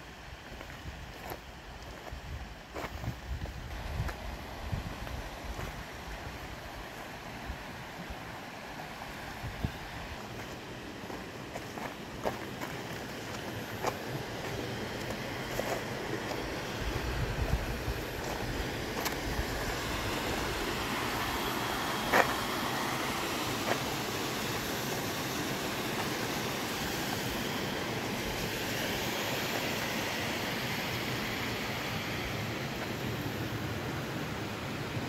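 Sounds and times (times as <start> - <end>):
steady rushing noise: 0.0 - 35.0.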